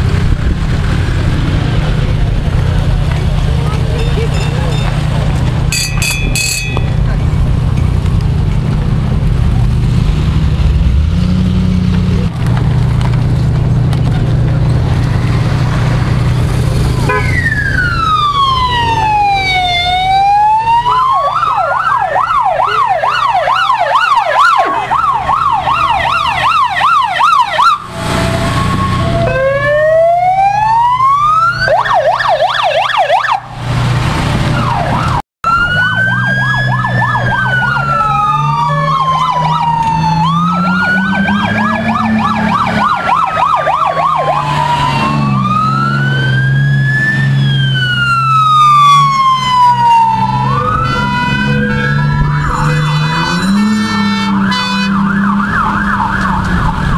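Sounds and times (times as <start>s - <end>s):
emergency vehicle sirens: 0.0s - 56.9s
vehicle engine droning: 0.0s - 56.9s.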